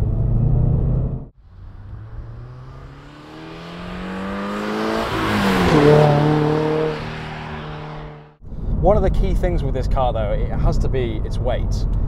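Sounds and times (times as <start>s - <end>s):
car engine accelerating past: 0.7s - 8.4s.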